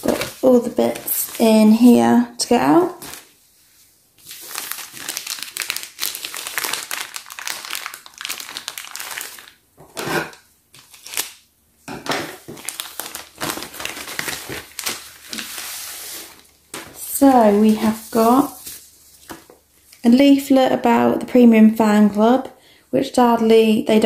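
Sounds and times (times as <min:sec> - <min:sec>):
plastic bag crinkling: 0:00.0 - 0:02.1, 0:02.8 - 0:03.4, 0:04.2 - 0:11.4, 0:12.0 - 0:20.1.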